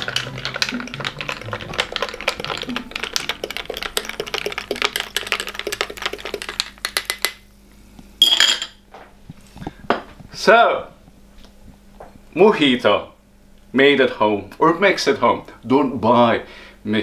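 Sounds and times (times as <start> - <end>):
spoon stirring ice in glass: 0.0 - 7.4.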